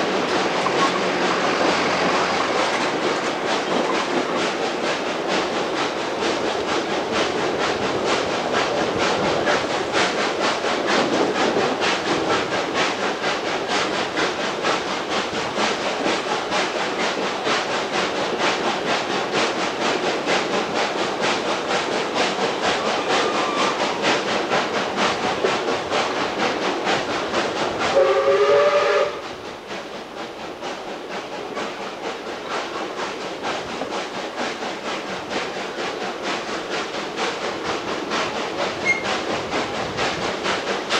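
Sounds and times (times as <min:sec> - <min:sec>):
steam train running: 0:00.0 - 0:40.9
steam whistle blast: 0:27.9 - 0:29.2.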